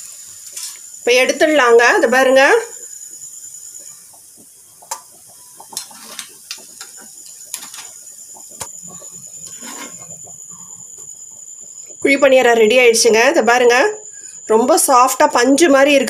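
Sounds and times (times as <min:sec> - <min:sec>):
faint high whine: 0:00.0 - 0:16.0
metal spoon scraping a pan: 0:09.4 - 0:10.3.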